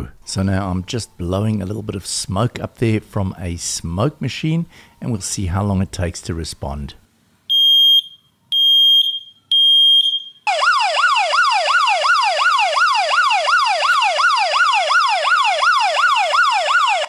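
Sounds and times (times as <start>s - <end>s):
smoke alarm beeping: 7.5s - 10.5s
electronic siren wailing: 7.5s - 17.0s.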